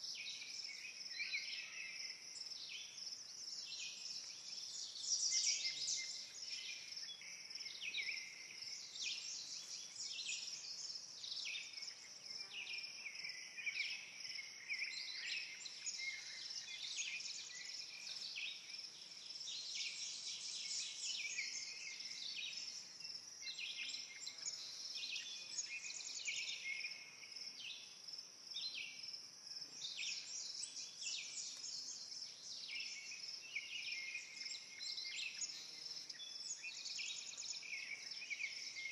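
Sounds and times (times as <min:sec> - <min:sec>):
songbirds singing: 0:00.0 - 0:38.9.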